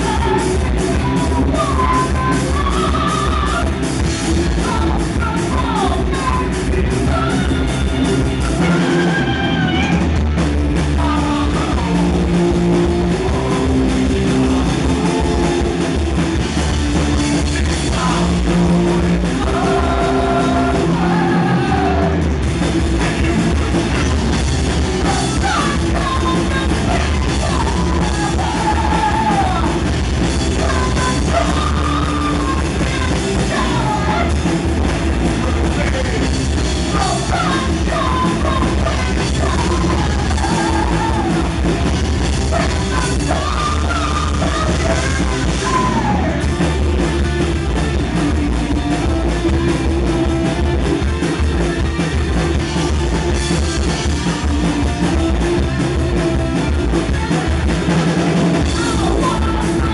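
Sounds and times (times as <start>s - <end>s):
sung and shouted vocals: 0.0s - 10.1s, 10.8s - 15.8s, 17.6s - 22.4s, 25.0s - 34.6s, 36.9s - 46.6s, 58.4s - 59.9s
bass guitar: 0.0s - 59.9s
distorted electric guitars: 0.0s - 59.9s
drum kit: 0.0s - 59.9s.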